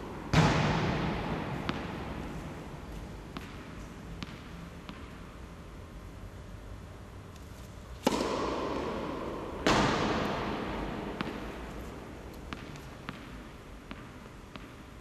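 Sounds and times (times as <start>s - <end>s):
loud echoing bangs: 0.0s - 2.3s.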